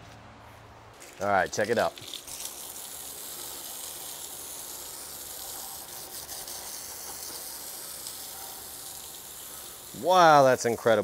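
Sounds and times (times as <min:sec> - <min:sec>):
garden hose spraying water: 0:01.0 - 0:11.0.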